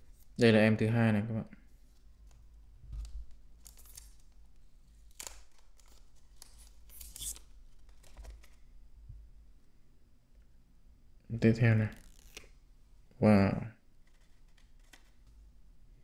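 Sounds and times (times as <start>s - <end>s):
plastic film peeling: 1.8s - 8.7s, 11.9s - 12.6s, 14.0s - 15.4s.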